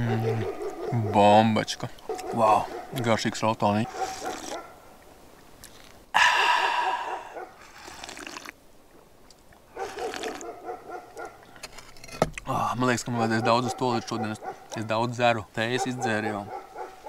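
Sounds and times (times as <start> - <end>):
person slurping hot drink: 4.0 - 4.6, 5.6 - 8.6, 9.8 - 10.4.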